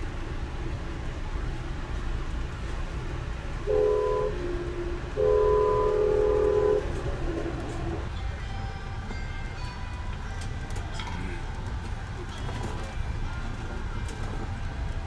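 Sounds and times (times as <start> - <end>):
train rumbling on rails: 0.0 - 15.0
train horn blasts: 3.6 - 7.2.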